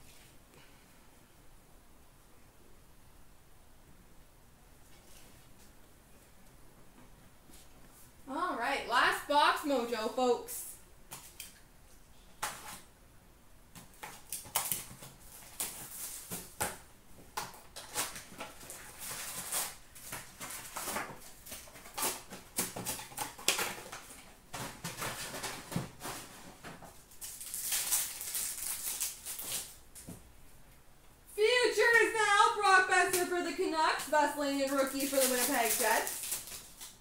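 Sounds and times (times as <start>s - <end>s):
wrappers tearing and crinkling: 14.0s - 16.8s, 17.7s - 30.0s, 33.1s - 37.0s.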